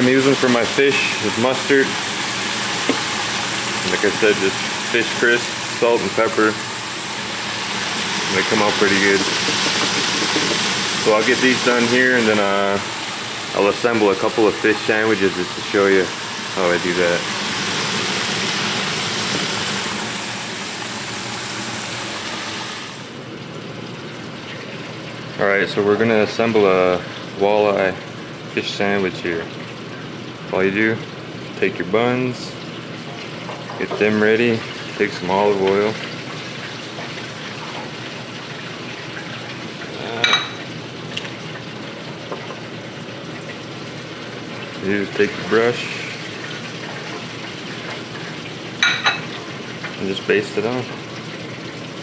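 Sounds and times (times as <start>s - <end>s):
oil sizzling in deep fryer: 0.0s - 52.0s.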